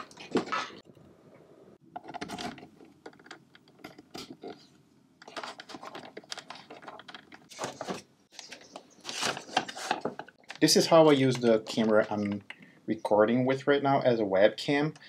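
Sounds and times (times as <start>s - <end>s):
hands handling plastic charger: 2.0s - 12.7s.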